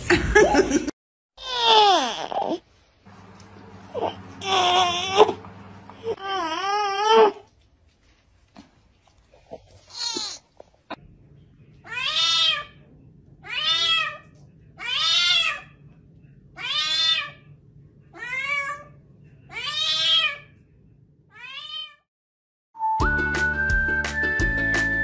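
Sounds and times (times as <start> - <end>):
cat meowing: 16.6 - 17.5, 18.1 - 20.5, 21.3 - 22.1.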